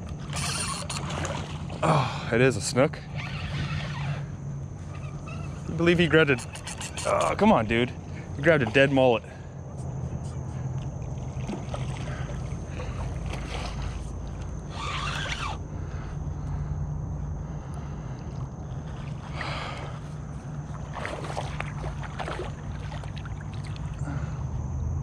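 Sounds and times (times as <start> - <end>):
fish splashing at water surface: 11.0 - 14.2, 20.7 - 24.0.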